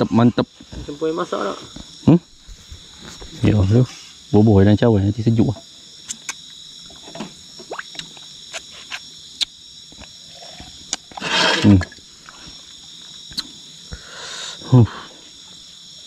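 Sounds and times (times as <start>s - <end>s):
crickets chirring: 0.0s - 16.0s
small sharp clicks: 6.0s - 6.5s.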